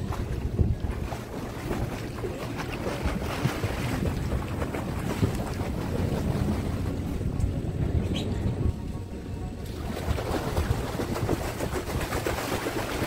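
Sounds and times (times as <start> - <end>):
water splashing from swimmer: 0.0 - 7.2, 9.6 - 13.0
steady low rumble: 0.0 - 13.0.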